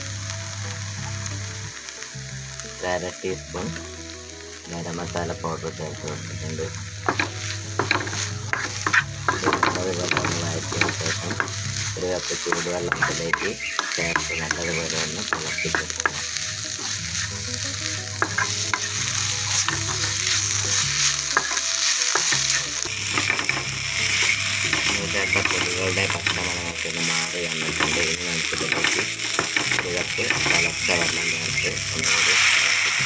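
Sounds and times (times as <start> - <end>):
food sizzling in a pan: 0.0 - 33.0
spatula scraping a pan: 7.0 - 31.2.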